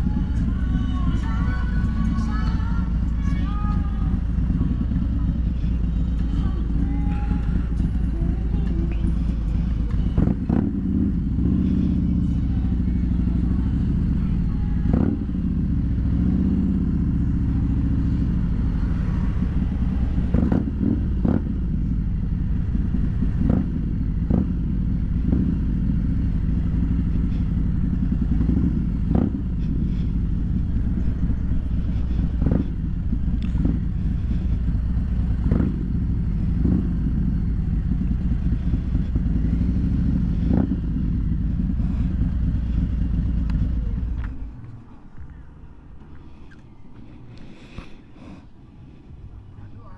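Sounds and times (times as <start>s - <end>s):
motorcycle engine running: 0.0s - 49.9s.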